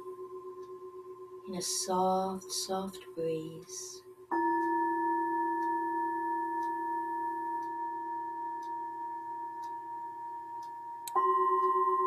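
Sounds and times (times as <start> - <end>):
singing bowl ringing: 4.3 - 12.0.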